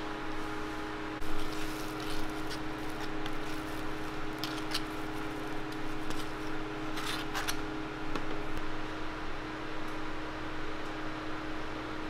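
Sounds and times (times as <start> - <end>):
background hum: 0.0 - 12.0
spatula scraping cream tub: 1.2 - 7.6
spatula spreading whipped cream: 1.2 - 7.6.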